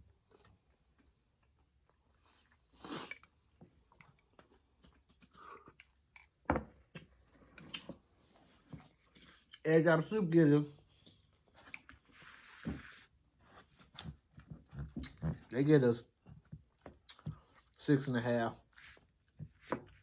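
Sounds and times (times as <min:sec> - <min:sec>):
person chewing: 0:00.3 - 0:08.0, 0:10.9 - 0:12.1, 0:16.7 - 0:17.8.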